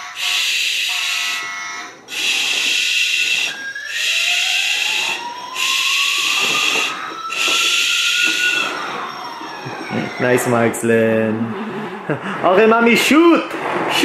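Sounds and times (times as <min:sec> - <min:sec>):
toy siren rising: 0:00.0 - 0:10.7
toy hiss sound effects: 0:00.2 - 0:01.3, 0:02.1 - 0:09.0.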